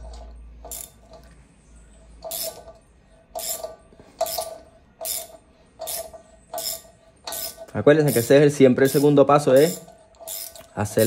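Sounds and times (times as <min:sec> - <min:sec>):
socket ratchet clicking: 0:02.2 - 0:02.7, 0:03.4 - 0:10.8.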